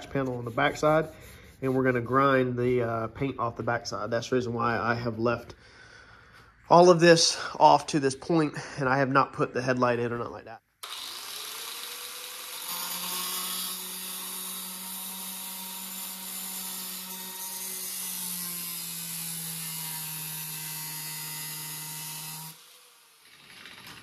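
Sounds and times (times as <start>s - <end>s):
angle grinder cutting metal: 10.8s - 24.0s.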